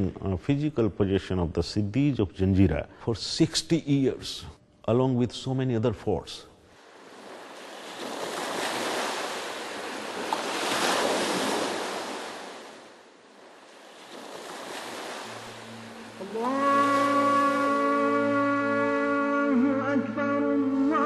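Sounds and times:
sea waves surging: 0:06.7 - 0:21.0
music with long held notes: 0:15.3 - 0:21.0.

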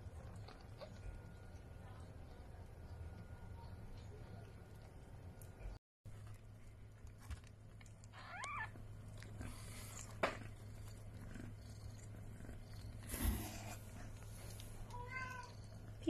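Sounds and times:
cat purring: 0:00.0 - 0:05.8, 0:08.2 - 0:16.0.

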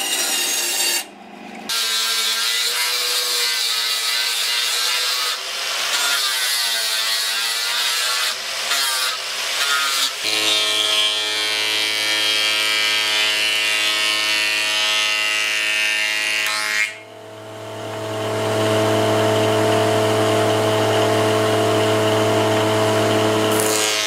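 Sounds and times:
planer cutting wood: 0:00.0 - 0:24.0
machine motor hum: 0:17.1 - 0:23.6.

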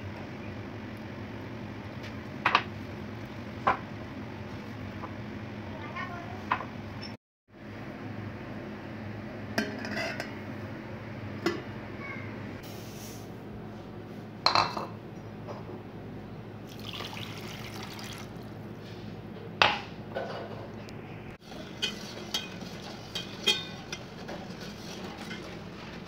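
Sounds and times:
water pouring onto sugar: 0:16.7 - 0:18.6
metal spoon clinking on pot: 0:21.7 - 0:24.1.

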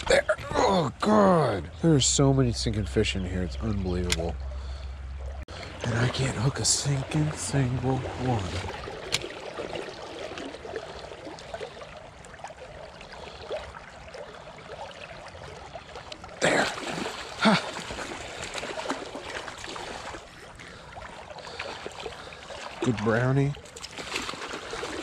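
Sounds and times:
creek water running over rocks: 0:05.4 - 0:25.0.

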